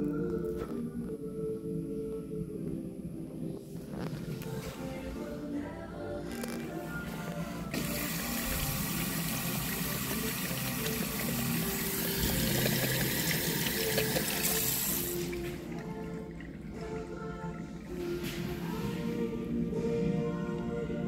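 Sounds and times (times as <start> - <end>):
tap water running into washbasin: 7.7 - 17.1.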